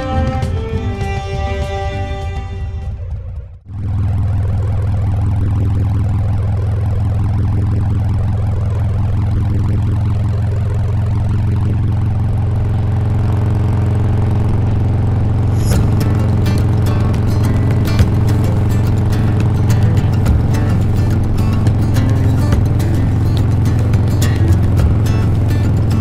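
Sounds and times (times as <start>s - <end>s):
motorcycle engine drone: 0.0s - 26.0s
road noise: 0.0s - 26.0s
wind noise: 15.3s - 26.0s.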